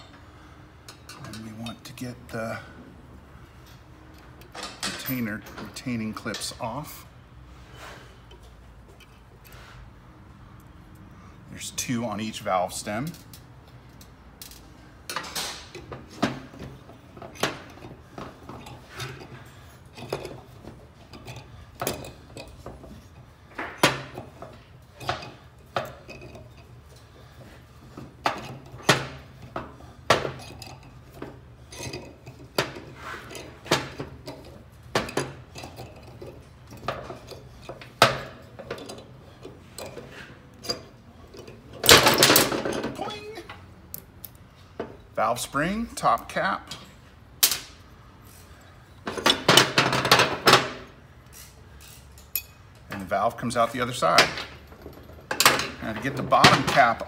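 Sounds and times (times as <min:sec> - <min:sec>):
metal parts clattering: 0:28.2 - 0:43.6, 0:53.9 - 0:57.0.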